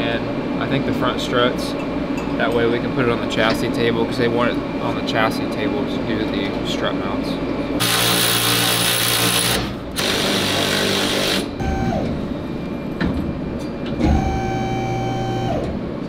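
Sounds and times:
steady whine: 2.5s - 16.0s
power tool bursts: 7.8s - 11.6s.

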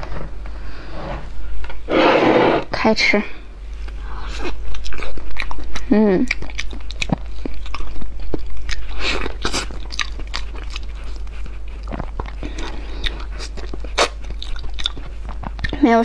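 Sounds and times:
chewing and lip smacks: 3.8s - 16.0s.

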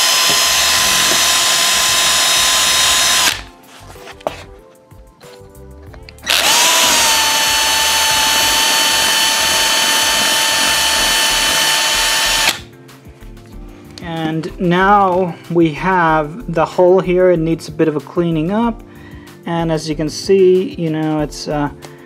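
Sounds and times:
cordless drill whining: 0.0s - 3.5s, 6.2s - 12.7s.

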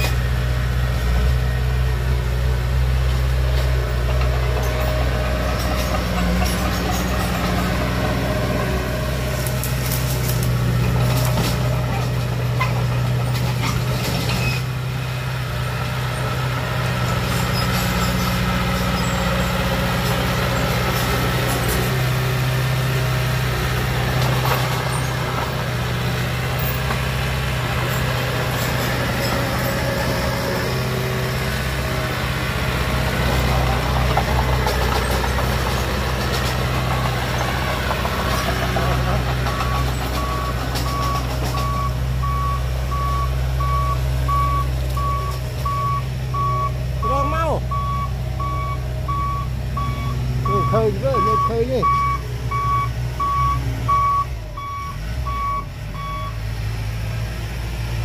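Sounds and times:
bulldozer diesel engine running: 0.0s - 58.0s
reversing alarm beeping: 39.5s - 56.4s.

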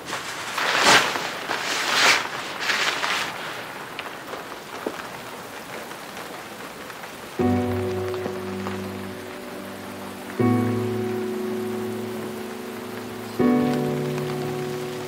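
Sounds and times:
plastic sheet rustling: 0.0s - 9.8s
steady rain: 0.0s - 15.0s.

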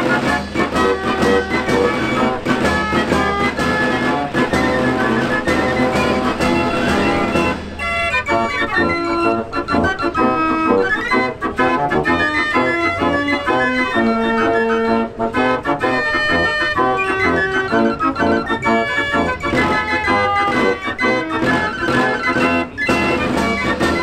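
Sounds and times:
fair organ playing a tune: 0.0s - 24.0s.

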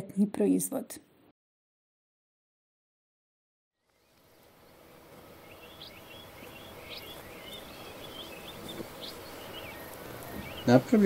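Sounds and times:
small birds chirping: 3.8s - 11.0s
steady background hiss: 3.9s - 11.0s.

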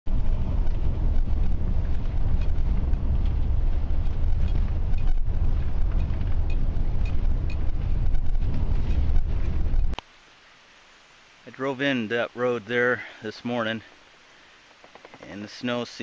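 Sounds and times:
truck rumbling on snow: 0.1s - 10.0s.

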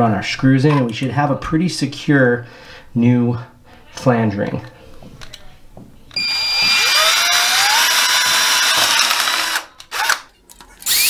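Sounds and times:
power drill whining: 6.1s - 11.0s.

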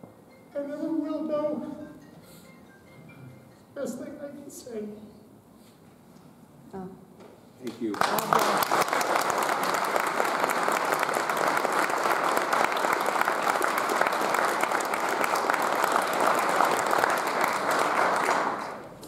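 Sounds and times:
audience applauding: 7.6s - 18.9s.

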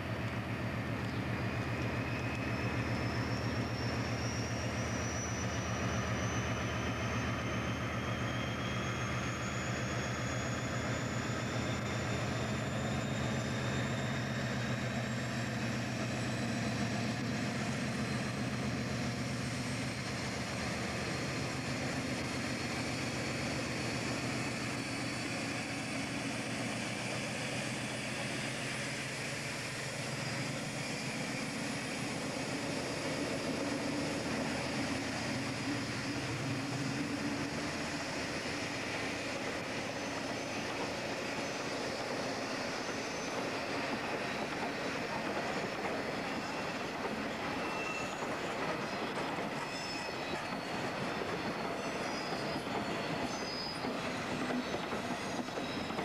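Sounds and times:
diesel locomotive engine pulsing: 0.0s - 56.0s.

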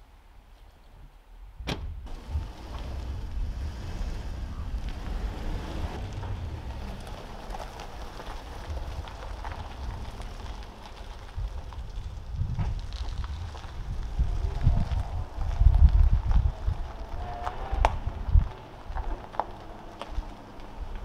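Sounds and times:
tyre noise on road: 0.0s - 21.0s
car door shutting: 1.6s - 4.0s
car engine driving off: 2.0s - 21.0s.

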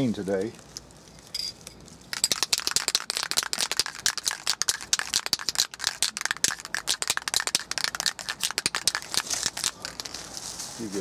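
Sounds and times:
aerosol can mixing ball rattling: 2.1s - 10.2s.

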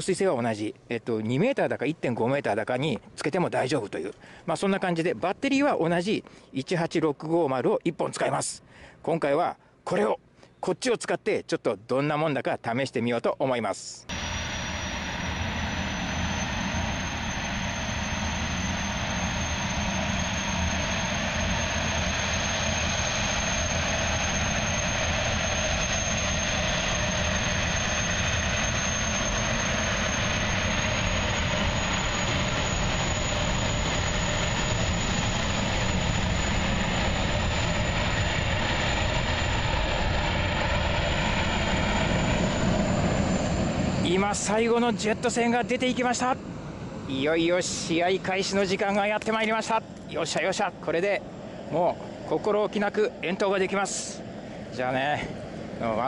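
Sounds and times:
gas turbines roaring with high whine: 14.1s - 56.0s.

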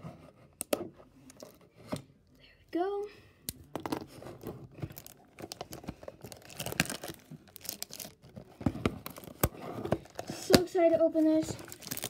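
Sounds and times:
plastic wrap crinkling and tearing: 4.9s - 10.6s, 11.4s - 12.0s.

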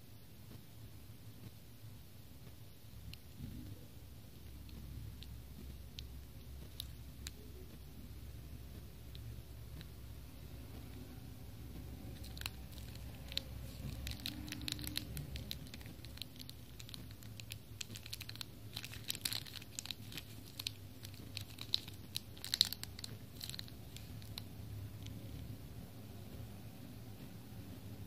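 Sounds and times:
plastic packet crinkling: 5.9s - 7.6s, 12.0s - 25.5s.

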